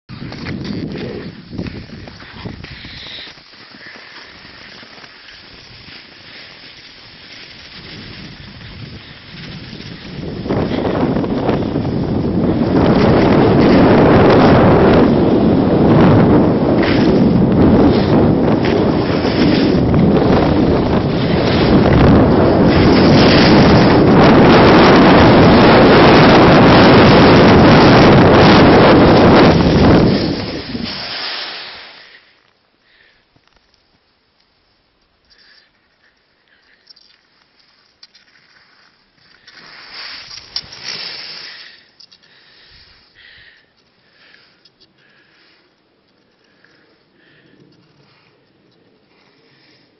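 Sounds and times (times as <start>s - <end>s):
wind buffeting microphone: 0.1s - 3.1s, 7.0s - 31.2s
skis hissing on snow: 0.2s - 11.8s, 16.7s - 24.1s, 29.0s - 32.4s, 38.3s - 43.2s.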